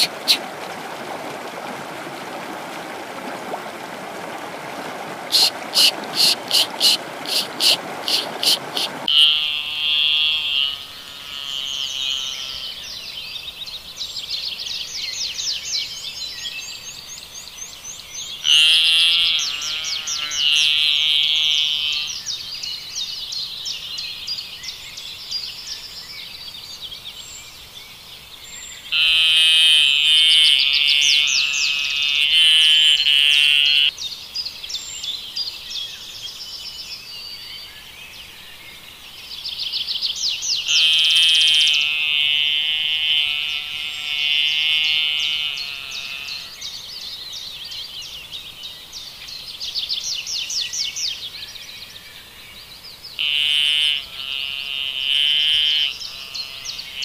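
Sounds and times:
animal chirping trills: 0:05.3 - 0:10.8.

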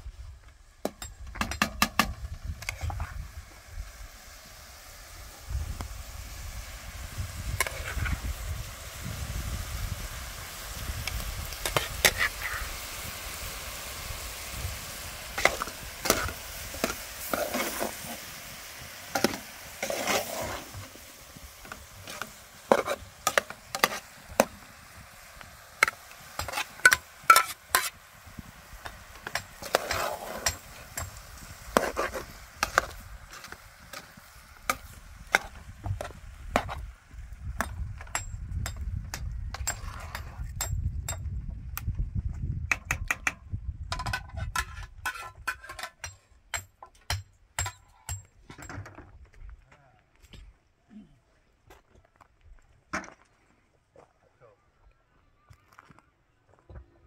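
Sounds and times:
faint hiss: 0:00.0 - 0:37.5
utensil scraping food in pan: 0:07.4 - 0:08.4, 0:11.5 - 0:28.1, 0:28.8 - 0:36.8, 0:44.1 - 0:46.1
sharp clicks and knocks: 0:42.7 - 0:49.1.

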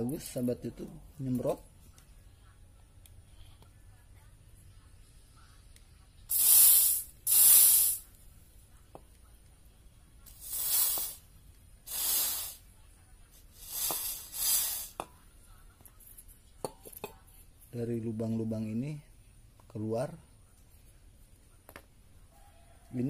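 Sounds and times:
aerosol spray hissing: 0:06.3 - 0:08.2, 0:10.3 - 0:12.7, 0:13.5 - 0:15.1.

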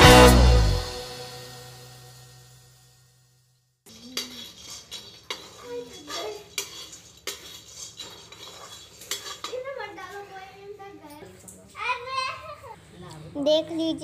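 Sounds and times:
metal spatula scraping a pan: 0:03.9 - 0:10.8.

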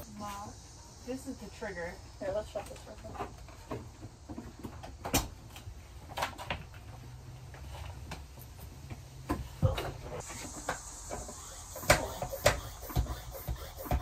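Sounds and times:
faint hiss: 0:10.2 - 0:14.0.

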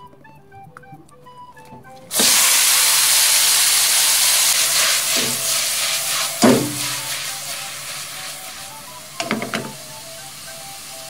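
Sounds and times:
spaghetti sizzling in hot oil: 0:02.1 - 0:11.0
frying pan knock: 0:06.4 - 0:07.1, 0:09.2 - 0:09.8.

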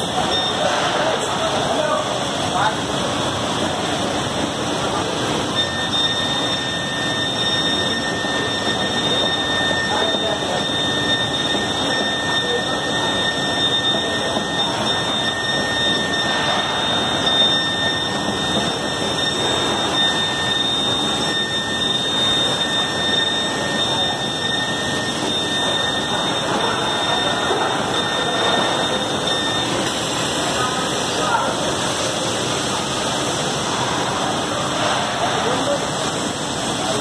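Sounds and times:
robotic welding machinery noise: 0:00.0 - 0:37.0
constant high whine: 0:04.9 - 0:32.7.

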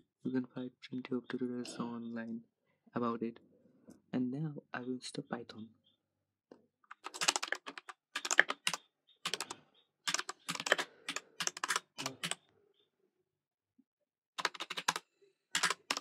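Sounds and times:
laptop keyboard typing: 0:06.9 - 0:12.5, 0:14.4 - 0:16.0.

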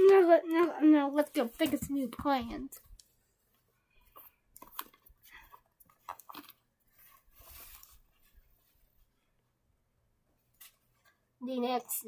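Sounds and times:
hands rustling plush toys: 0:00.0 - 0:09.3.

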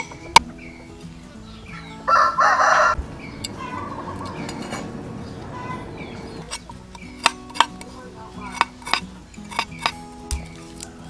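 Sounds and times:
faint background music: 0:00.0 - 0:11.0
rooster crowing: 0:02.0 - 0:06.4.

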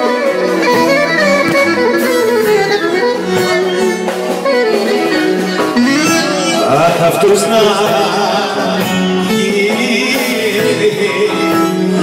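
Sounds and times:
live band playing: 0:00.0 - 0:12.0.

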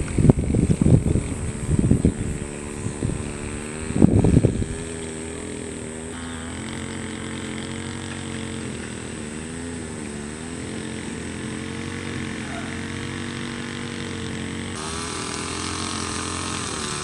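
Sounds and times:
wind gusts on microphone: 0:00.0 - 0:05.6
engine humming steadily: 0:00.0 - 0:17.0.

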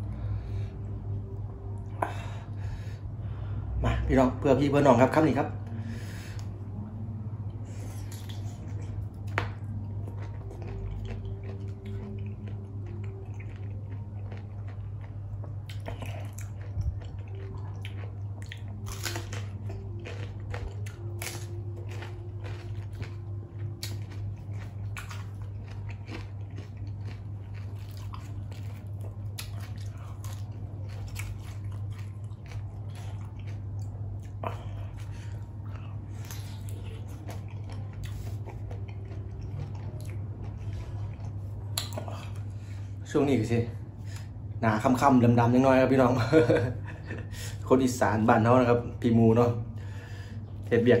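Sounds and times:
steady low hum: 0:00.0 - 0:51.0
wet squishy chewing: 0:07.8 - 0:42.5
crisp crunching bites: 0:18.8 - 0:23.2, 0:23.8 - 0:33.5.

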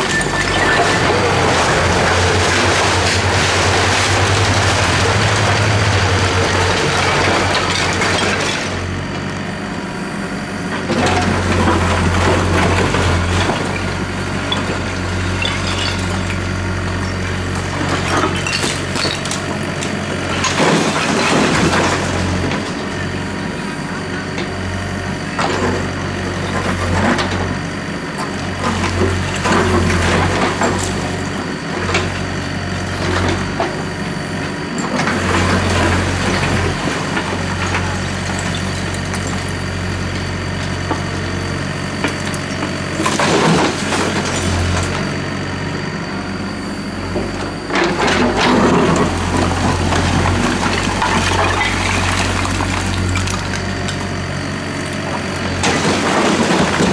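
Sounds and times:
bucket scraping rubble: 0:00.0 - 0:08.8
diesel engine running: 0:00.0 - 0:56.9.

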